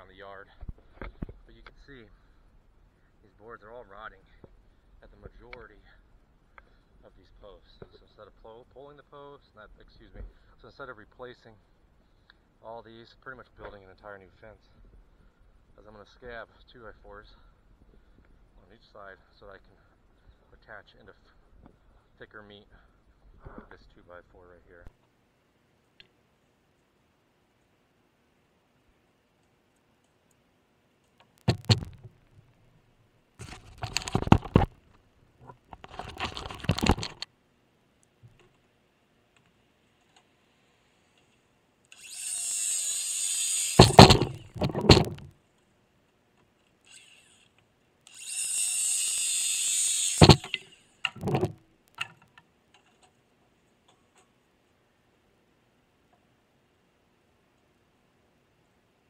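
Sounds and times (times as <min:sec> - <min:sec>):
wooden knocks of lumber: 0:31.5 - 0:32.1, 0:43.8 - 0:45.3, 0:50.2 - 0:50.5
circular saw cutting wood: 0:41.9 - 0:45.0, 0:46.9 - 0:47.5, 0:48.1 - 0:51.1.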